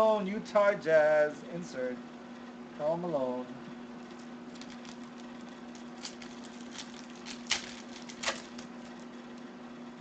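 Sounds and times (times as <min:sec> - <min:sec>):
foil wrapper crinkling: 0:04.0 - 0:09.5
foil tearing: 0:04.1 - 0:09.1.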